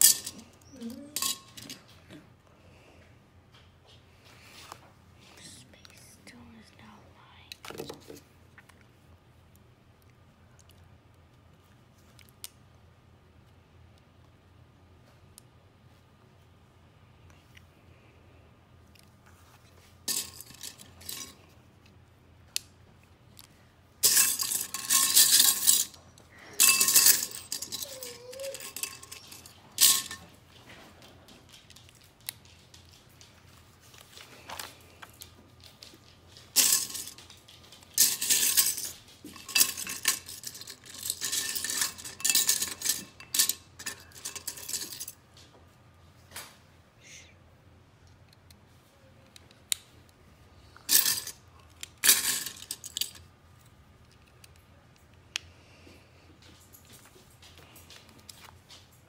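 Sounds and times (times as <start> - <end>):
plastic bricks rattling in a bowl: 26.6 - 30.2, 36.5 - 45.2.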